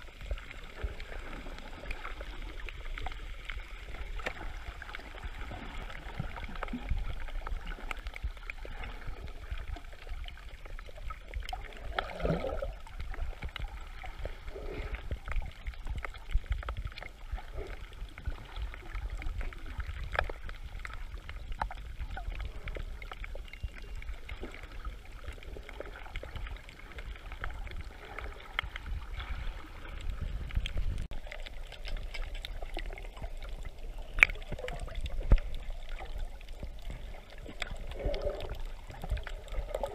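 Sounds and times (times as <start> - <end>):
muffled water sloshing: 0.0 - 39.9
small scattered clicks: 30.5 - 38.2.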